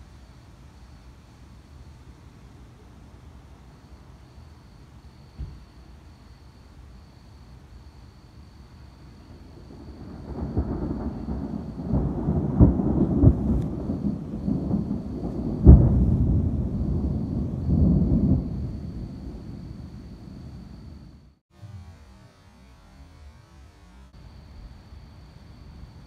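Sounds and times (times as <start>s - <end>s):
thunder rumbling: 8.9s - 21.4s
sharp thunder cracks: 9.4s - 21.3s.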